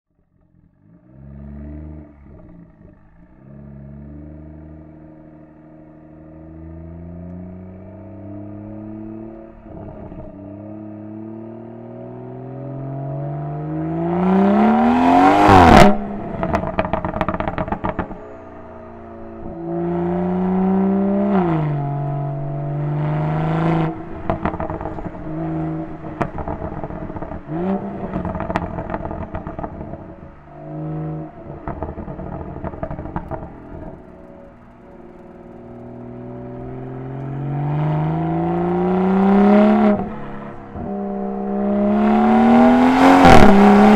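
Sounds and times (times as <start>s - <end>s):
car engine accelerating: 0.1s - 43.9s
exhaust pops and crackles: 16.3s - 18.3s, 24.0s - 25.4s, 26.0s - 30.4s, 31.4s - 37.3s.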